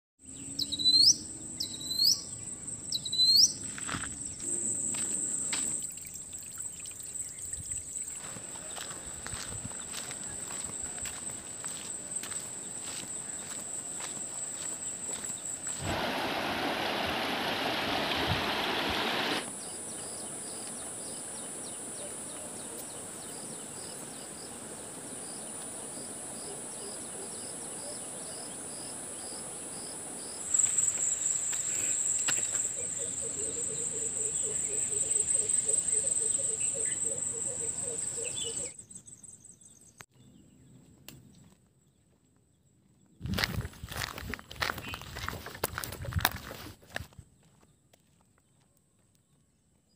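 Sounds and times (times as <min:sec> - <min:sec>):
low pulsing insect call: 0:00.2 - 0:40.7
insects trilling: 0:00.6 - 0:17.3, 0:17.9 - 0:38.8
rushing noise: 0:15.7 - 0:19.5.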